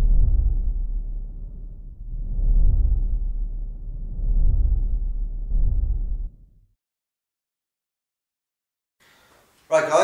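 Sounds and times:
low muffled rumbling whoosh: 0.0s - 6.8s.

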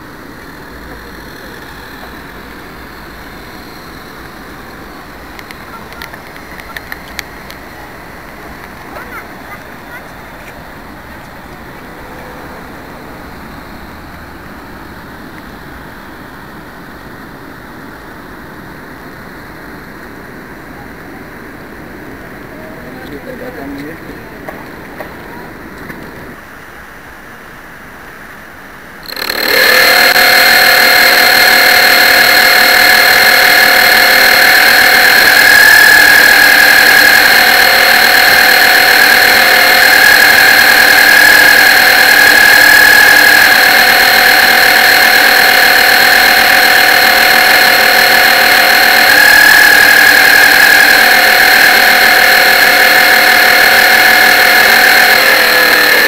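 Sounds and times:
model boat motor whining: 0.0s - 17.4s, 28.9s - 56.0s.

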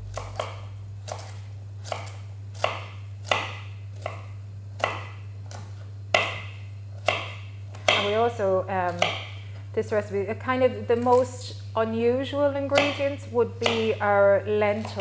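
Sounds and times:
knife chopping carrot on board: 0.0s - 8.2s, 8.9s - 9.4s, 12.7s - 14.0s.

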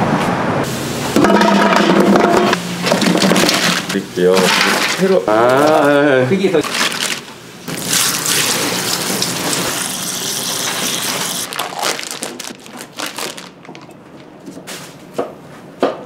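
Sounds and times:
water pouring into a pot: 7.7s - 11.6s
handling noises: 11.0s - 15.3s.

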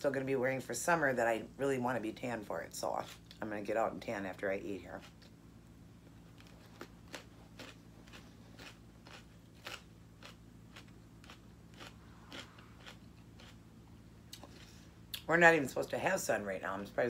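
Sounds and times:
chewing crisp celery: 4.8s - 5.4s, 6.0s - 15.3s.

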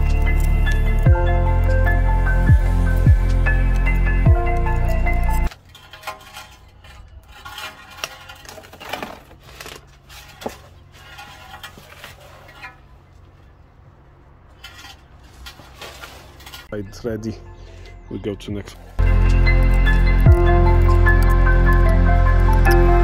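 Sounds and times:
metal tools clinking: 3.6s - 13.0s.

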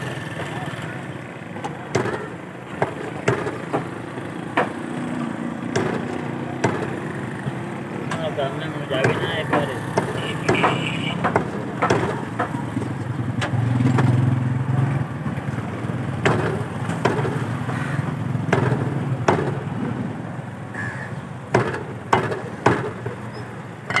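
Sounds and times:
vehicle engine humming: 0.0s - 24.0s
cleaver chopping on wooden block: 1.9s - 4.8s, 5.7s - 7.0s, 9.0s - 12.6s, 16.2s - 17.4s, 18.5s - 19.6s, 21.5s - 23.0s.

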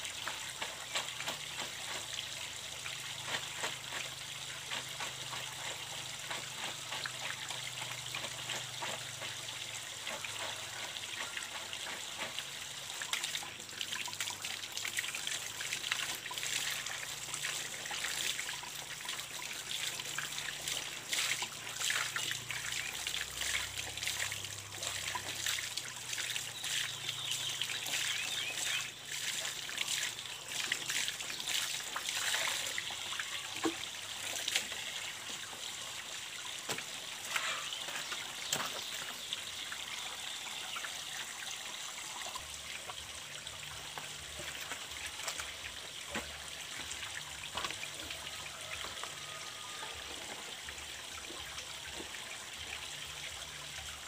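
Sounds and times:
water trickling from pipe: 0.0s - 54.0s
splashing of hand washing: 0.1s - 35.4s.

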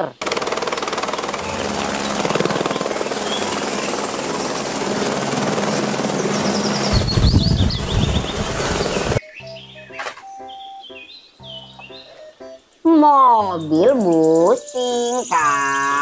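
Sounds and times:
helicopter rotor beating: 0.2s - 9.2s
steady rushing noise: 0.3s - 9.2s
heavy low rumble: 6.9s - 9.2s.

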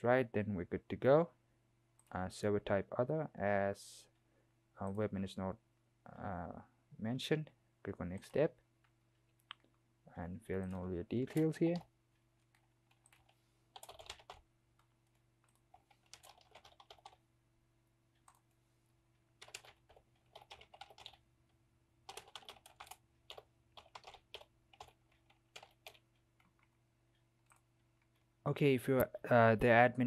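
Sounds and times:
typing on keyboard: 10.6s - 17.2s, 19.4s - 21.2s, 22.1s - 26.7s.

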